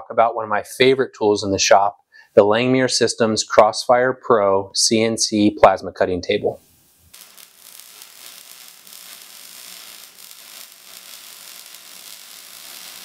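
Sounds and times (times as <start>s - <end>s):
static-like hiss: 4.7s - 13.0s.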